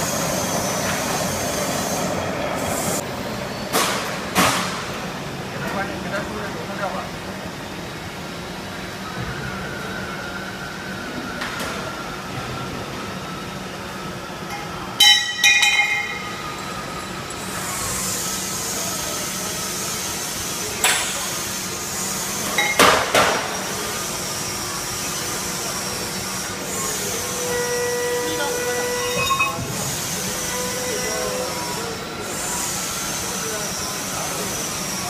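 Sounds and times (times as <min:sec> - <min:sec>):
ringing metallic clangs: 0:14.5 - 0:16.6, 0:29.0 - 0:29.7
sharp metal clanks: 0:15.0 - 0:16.4.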